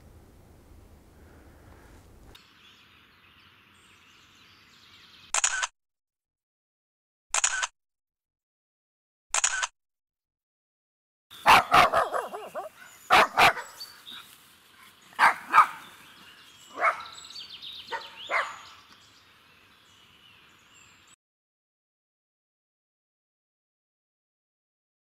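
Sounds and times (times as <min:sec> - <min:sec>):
dog barking: 0:11.4 - 0:13.9, 0:15.2 - 0:15.9, 0:16.7 - 0:17.2, 0:17.9 - 0:18.8.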